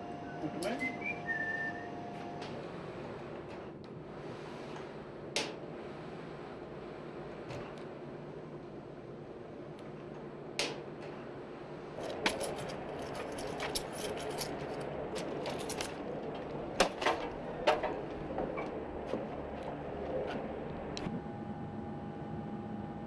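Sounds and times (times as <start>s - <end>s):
equipment hum: 0.0s - 23.0s
footsteps on metal step: 12.0s - 21.0s
clicks: 15.2s - 21.1s.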